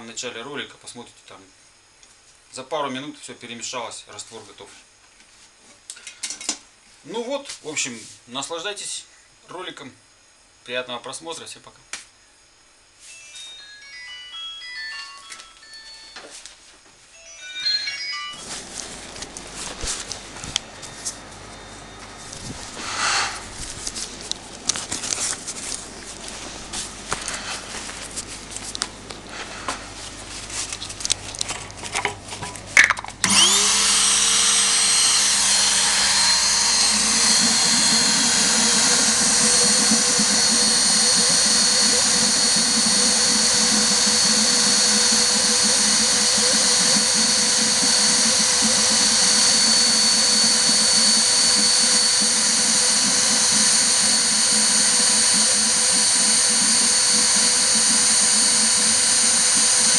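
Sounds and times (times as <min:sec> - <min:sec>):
fog generator motor whine: 0:17.5 - 0:32.0, 0:32.8 - 0:59.9.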